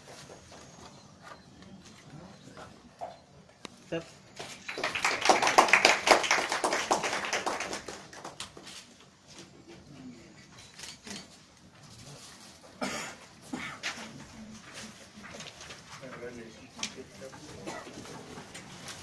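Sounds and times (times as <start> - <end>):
audience applauding: 4.4 - 8.8.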